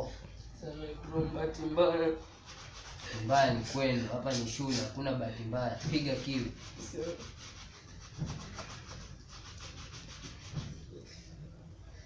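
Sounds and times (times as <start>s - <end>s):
shoe brush scrubbing: 2.3s - 5.0s, 5.8s - 10.8s.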